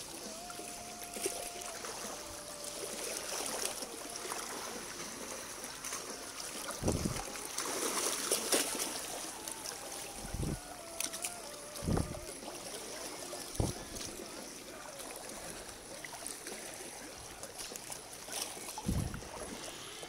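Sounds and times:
stream water sloshing: 0.0 - 20.0
dull low thumps: 6.8 - 7.2, 11.8 - 12.3, 13.6 - 14.0, 18.8 - 19.3.

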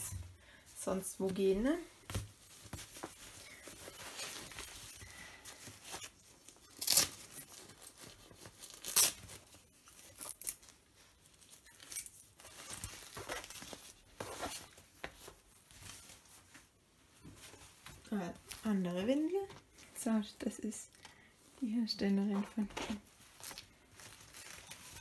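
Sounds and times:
fabric rustling: 0.0 - 25.0
nappy crinkling and rustling: 0.0 - 25.0.

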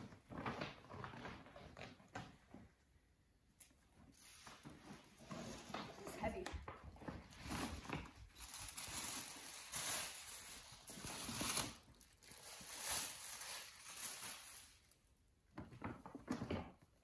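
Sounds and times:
tissue paper rustling: 7.0 - 15.1.

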